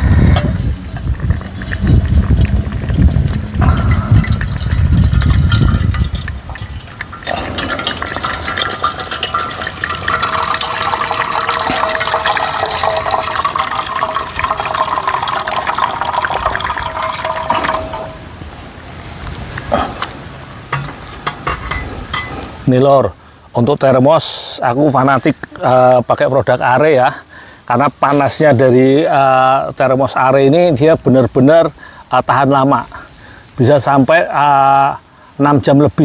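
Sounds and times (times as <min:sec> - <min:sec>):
low rumble: 0:00.0 - 0:07.9
hot water pouring into metal tin: 0:00.0 - 0:18.4.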